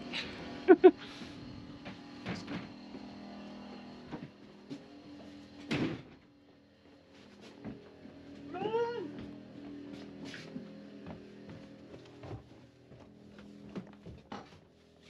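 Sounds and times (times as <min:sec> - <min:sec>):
low machine hum: 0:00.0 - 0:15.0
footsteps on wooden deck: 0:04.1 - 0:15.0.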